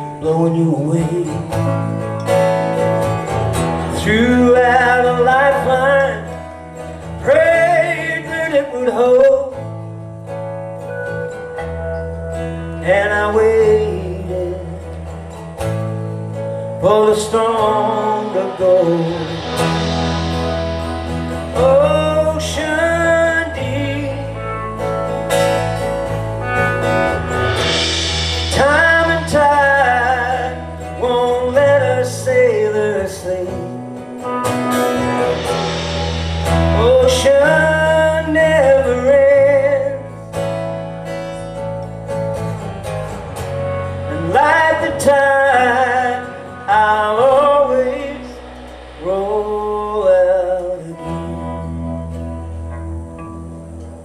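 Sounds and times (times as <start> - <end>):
live rock band playing: 0.0 - 54.0
wavering lead melody: 24.1 - 31.0.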